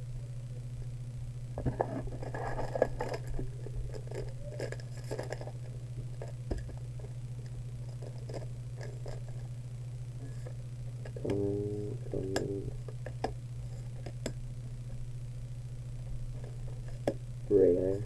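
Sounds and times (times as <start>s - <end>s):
steady low hum: 0.0s - 18.0s
cards rustling: 1.7s - 6.7s.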